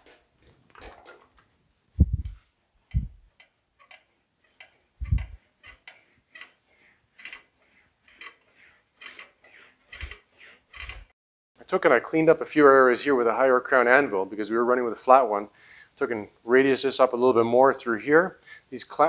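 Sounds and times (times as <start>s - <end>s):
sheet metal ticks and clicks: 2.9s - 6.6s, 7.2s - 11.1s.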